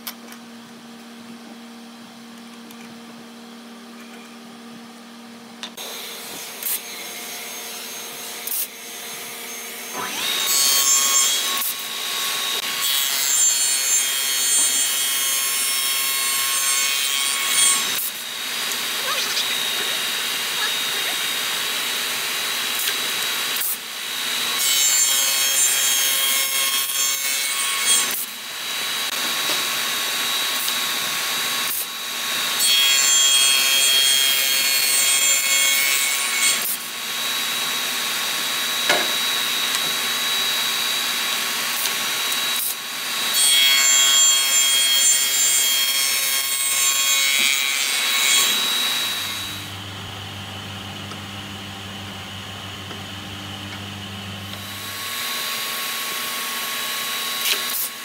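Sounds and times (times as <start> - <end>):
rough wood cutting noise: 5.7 - 25.0, 45.4 - 58.0.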